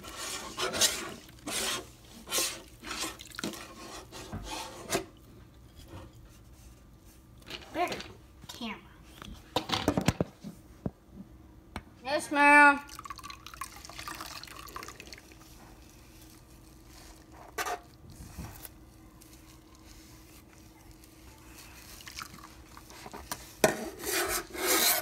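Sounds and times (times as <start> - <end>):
dishes scrubbed in soapy water: 0.0 - 6.7, 15.4 - 25.0.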